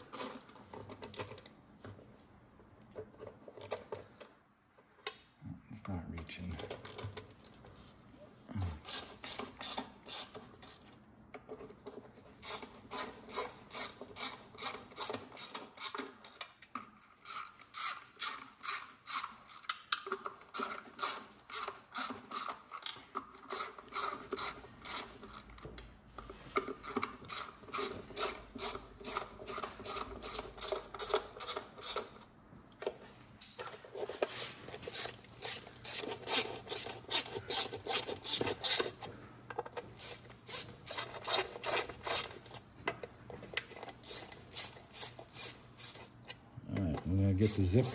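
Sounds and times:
hand ratchet clicking: 8.8s - 10.8s, 12.4s - 25.6s, 26.6s - 32.2s, 34.2s - 42.4s, 43.8s - 46.1s.

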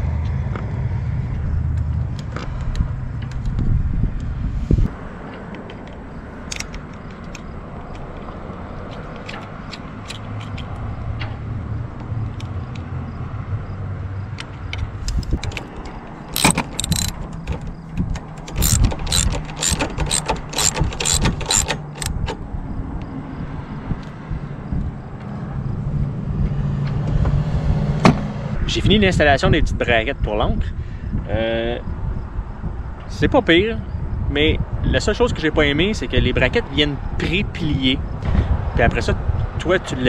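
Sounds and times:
hand tools clicking on metal: 15.0s - 22.2s.

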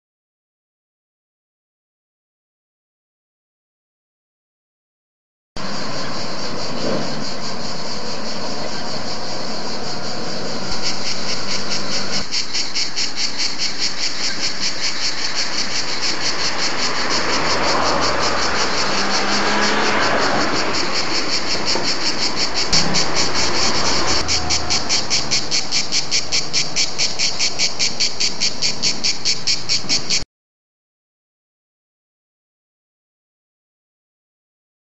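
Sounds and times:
cicadas buzzing: 5.6s - 30.3s.

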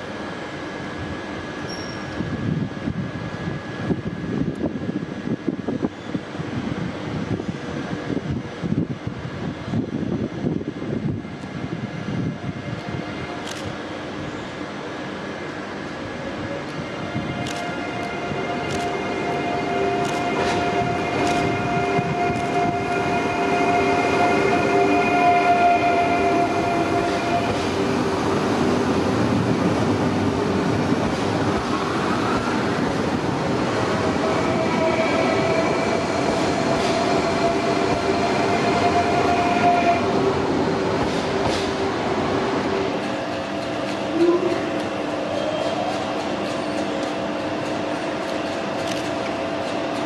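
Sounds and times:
train rumble: 0.0s - 50.0s
traction motor whine: 16.8s - 29.1s.

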